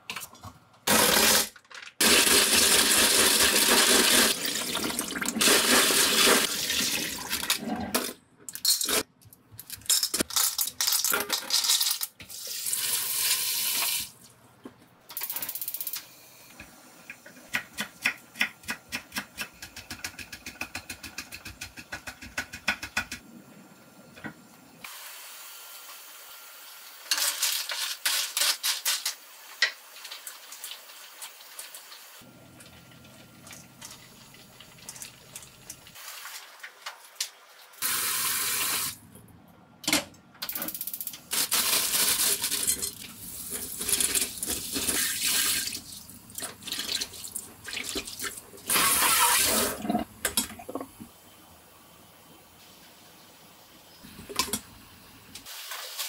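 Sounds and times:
tap water running: 0:02.0 - 0:07.6, 0:42.1 - 0:51.2
clams boiling with hiss: 0:24.9 - 0:32.3, 0:51.0 - 0:56.0.

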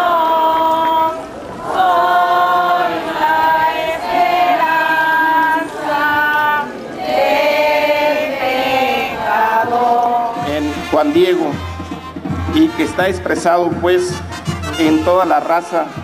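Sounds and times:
choir singing: 0:00.0 - 0:10.5.

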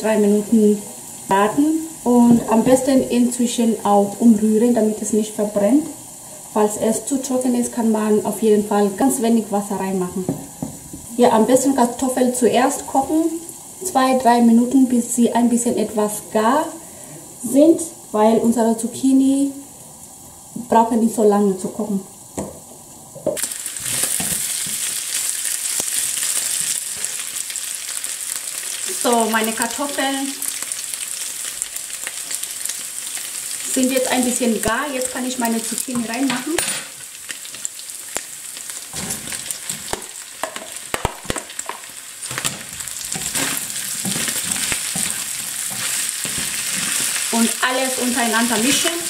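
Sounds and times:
meat and potatoes sizzling in a pan: 0:00.0 - 0:49.0
vegetable pieces tapping into pan: 0:23.4 - 0:25.0, 0:38.9 - 0:47.2
wooden spatula scraping a pan: 0:42.3 - 0:49.0.

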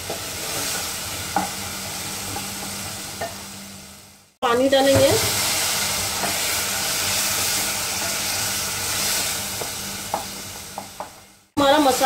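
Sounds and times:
water hissing in hot oil: 0:04.9 - 0:10.6.

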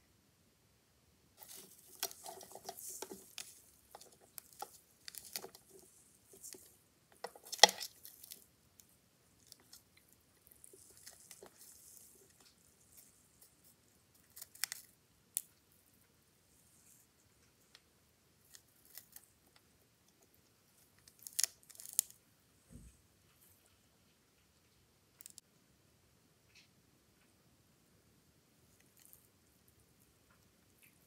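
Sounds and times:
tarantula crunching prey: 0:01.4 - 0:15.5, 0:18.4 - 0:19.6, 0:20.8 - 0:22.2.

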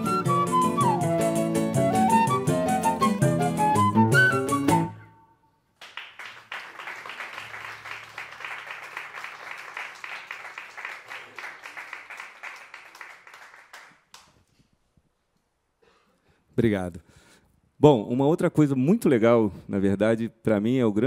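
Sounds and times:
audience applauding: 0:05.8 - 0:14.4.

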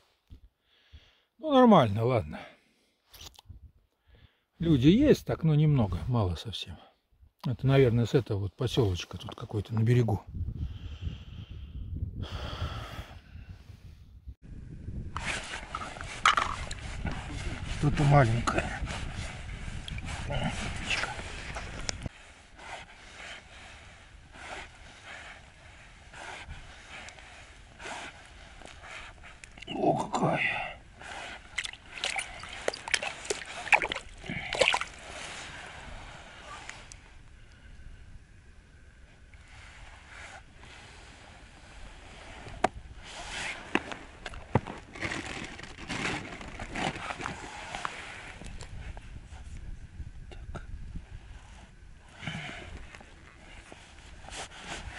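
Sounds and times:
man breathing: 0:00.6 - 0:01.4, 0:10.6 - 0:14.0.

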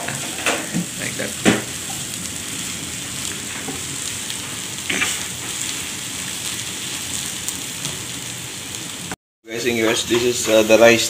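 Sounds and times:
vegetables sizzling in a frying pan: 0:00.0 - 0:11.0.

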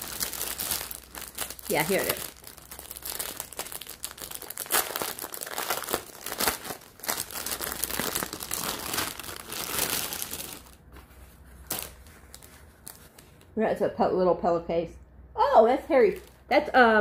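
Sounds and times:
packaging crinkling and tearing: 0:00.0 - 0:13.5.

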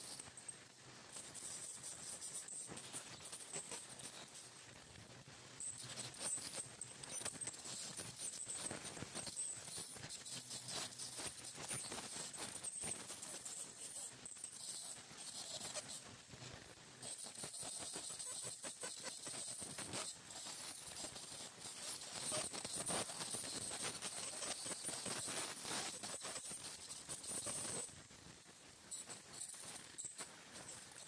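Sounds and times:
dental scaler high-pitched whine: 0:05.6 - 0:16.0, 0:17.0 - 0:27.9
scaler tip scraping teeth: 0:05.6 - 0:16.0, 0:17.0 - 0:27.9.

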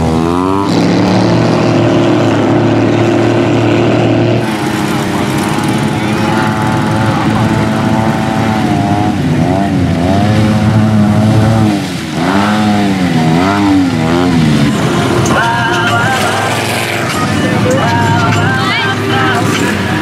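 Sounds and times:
off-road engines revving: 0:00.0 - 0:20.0
higher stepping tone: 0:12.9 - 0:20.0.

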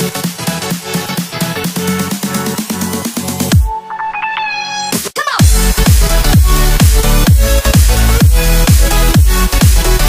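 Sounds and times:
electronic dance music: 0:00.0 - 0:10.0
deep falling bass sweep: 0:05.4 - 0:10.0.

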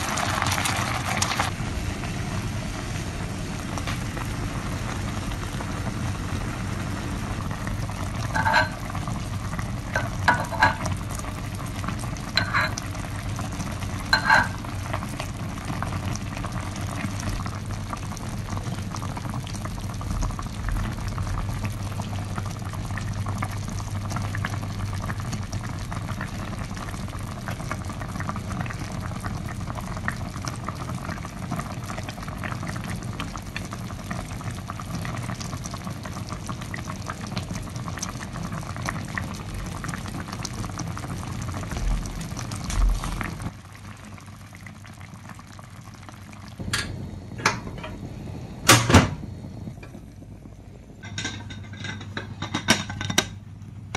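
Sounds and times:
broth bubbling in a pot: 0:00.0 - 0:53.9
metal ladle clinking on pot: 0:08.4 - 0:08.8, 0:10.0 - 0:10.9, 0:12.4 - 0:12.8, 0:14.1 - 0:14.6, 0:51.0 - 0:53.4.

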